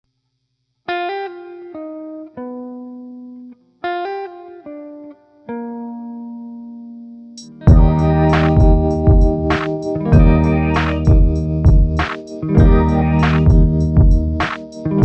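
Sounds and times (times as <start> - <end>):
plucked guitar notes: 5.5 - 15.0.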